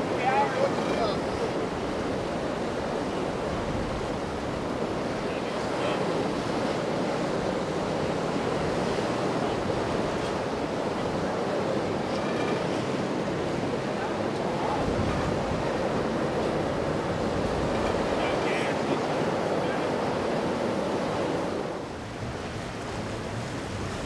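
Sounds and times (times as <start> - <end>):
water rushing and splashing: 0.0 - 24.0
wind on microphone: 14.6 - 18.2.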